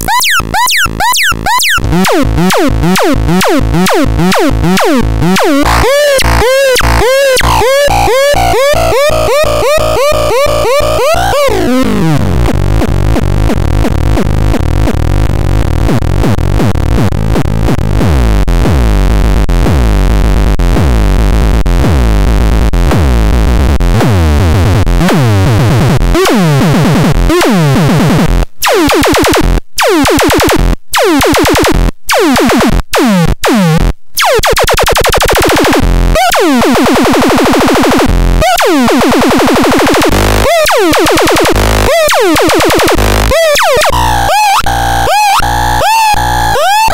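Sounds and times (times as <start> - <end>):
buzzy synth pulsing: 0.0 - 14.8, 34.2 - 46.9
low synth drone: 1.8 - 8.9.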